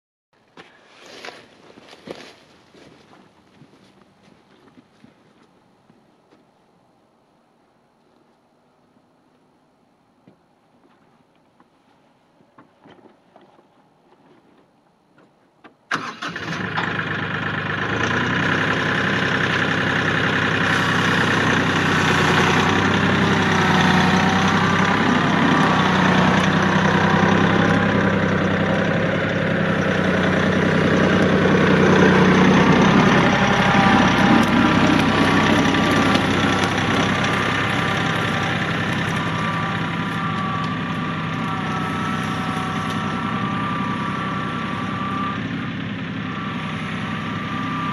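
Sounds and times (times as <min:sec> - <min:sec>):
tractor diesel engine starting: 0:15.9 - 0:47.9.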